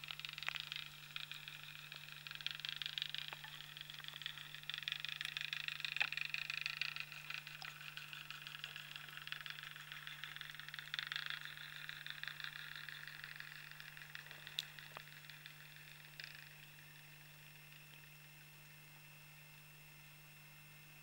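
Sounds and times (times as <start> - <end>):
underwater crackle of clicks: 0.0 - 18.8
steady low hum: 0.0 - 21.0.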